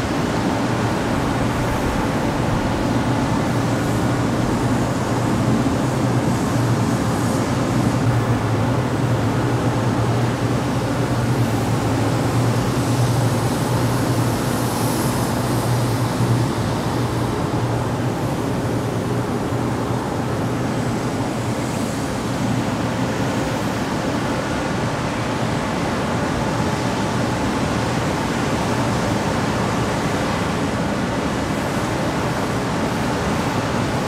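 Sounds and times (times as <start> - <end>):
exhaust fan running: 0.0 - 34.0.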